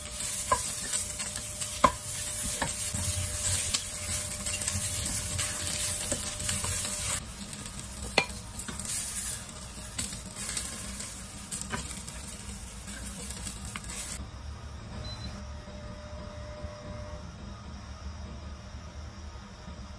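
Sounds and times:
vegetables sizzling in hot oil: 0.0s - 14.2s.

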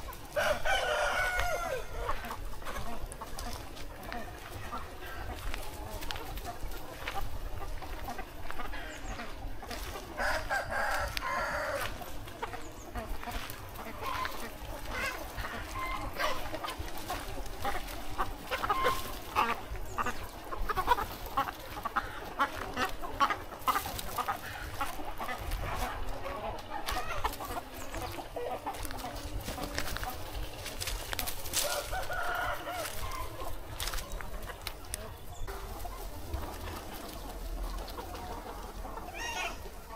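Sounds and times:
chickens clucking: 0.0s - 39.9s
rooster crowing: 0.4s - 2.2s, 10.2s - 12.0s, 31.6s - 33.3s.

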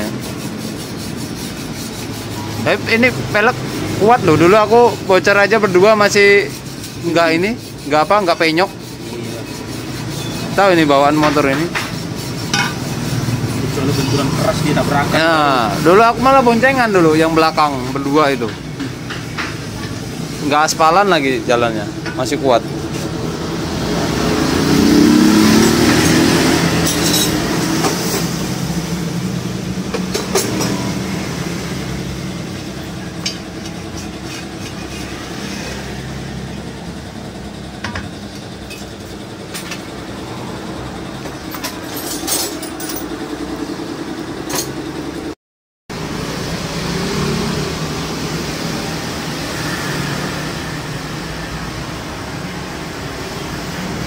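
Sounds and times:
tyre changer machine hum: 0.0s - 45.3s.

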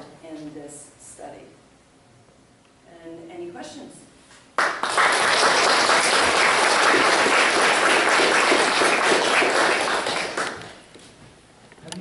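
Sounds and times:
audience applauding: 4.6s - 10.8s.

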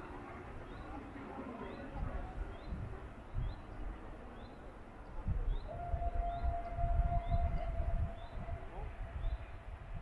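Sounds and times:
wind buffeting microphone: 1.9s - 4.1s, 5.2s - 10.0s.

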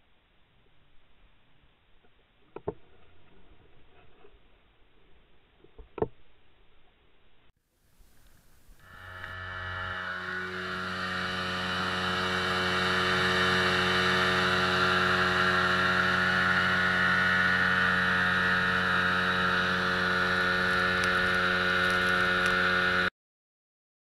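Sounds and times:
outboard motor running: 8.4s - 23.1s.

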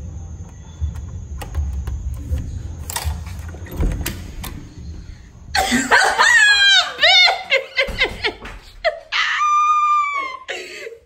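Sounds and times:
door lock and handle clicking: 0.5s - 5.0s.

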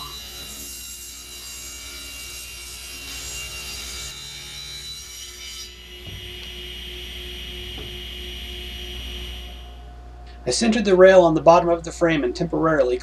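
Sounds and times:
table saw cutting wood: 0.0s - 9.8s.

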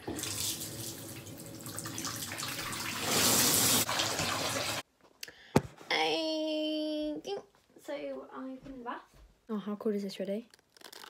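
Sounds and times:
water pouring into bathtub: 0.0s - 4.8s.

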